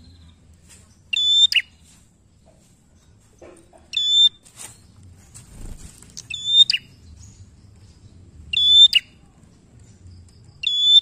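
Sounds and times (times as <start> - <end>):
bird calls: 6.2 - 11.0.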